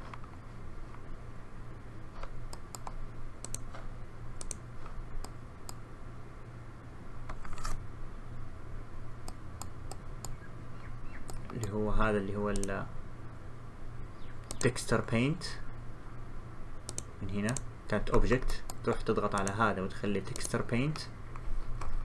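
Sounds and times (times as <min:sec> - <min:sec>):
steady low hum: 0:00.0 - 0:22.0
mouse and keyboard clicks: 0:02.2 - 0:03.8, 0:16.9 - 0:19.6.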